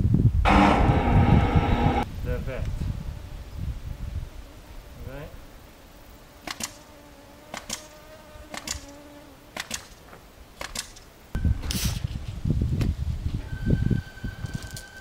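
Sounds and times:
loud low rumble: 0.4 - 2.1
steady high whine: 0.4 - 2.1.

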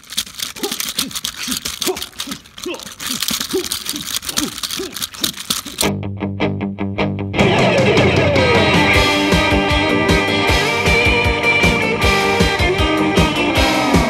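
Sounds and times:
plastic toy clacking and knocking: 0.0 - 5.9
music: 5.9 - 14.0.

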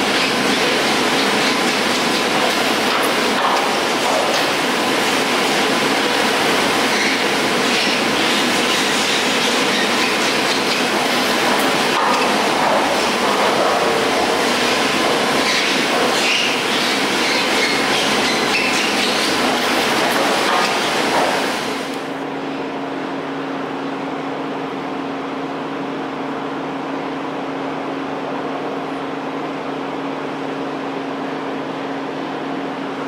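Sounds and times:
chairs rattling over rollers: 6.9 - 21.6.

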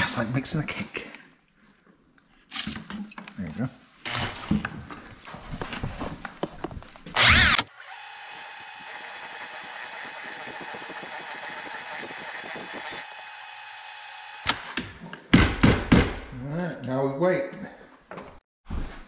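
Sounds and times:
drill mixing mortar in bucket: 7.1 - 14.6.

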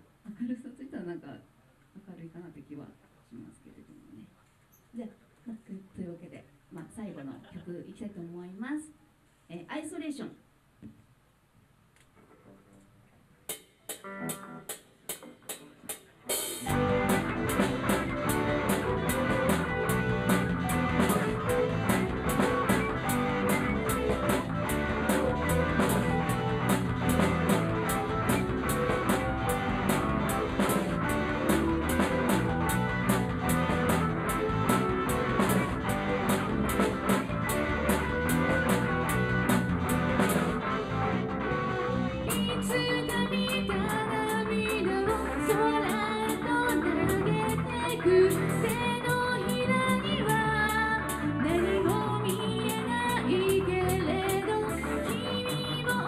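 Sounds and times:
rock band playing: 13.5 - 56.0.

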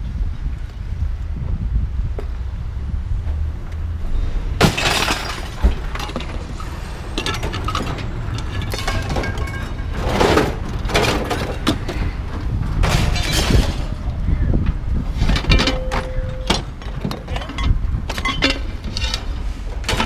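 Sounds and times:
low rumble: 0.0 - 20.0
scrap metal crashing onto pile: 4.6 - 11.9, 12.8 - 14.1.

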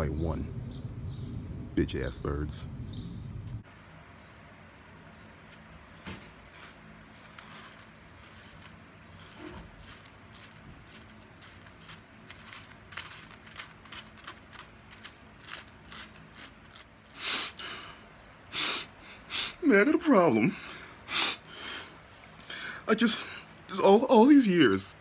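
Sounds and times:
plastic card scraping on paper plate: 5.5 - 17.2.

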